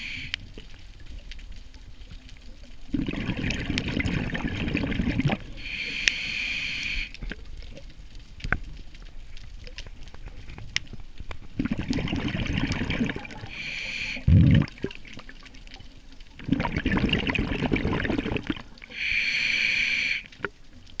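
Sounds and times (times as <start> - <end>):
regulator hissing inhale: 0.0 - 0.4, 5.6 - 7.2, 13.4 - 14.3, 18.9 - 20.4
exhaled bubbles underwater: 2.4 - 6.2, 11.4 - 19.4.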